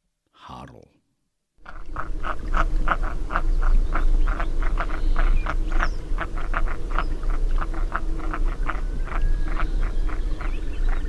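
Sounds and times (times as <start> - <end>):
duck rasping croaks: 1.6 - 5.6, 6.2 - 10.6.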